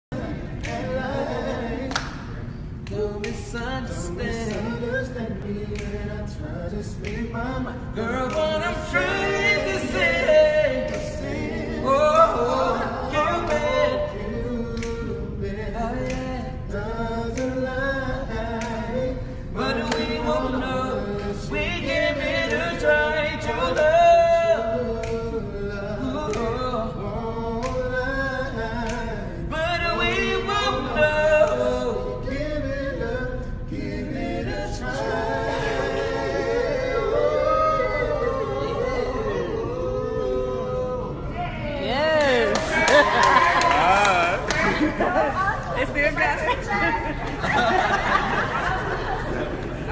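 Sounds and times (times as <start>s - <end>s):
men singing a cappella: 0.0s - 45.3s.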